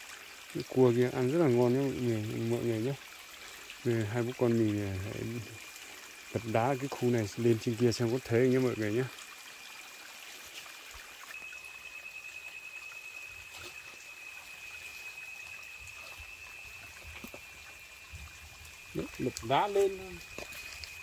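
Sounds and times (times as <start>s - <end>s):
water trickling among stones: 0.0s - 21.0s
high-pitched whine: 11.3s - 21.0s.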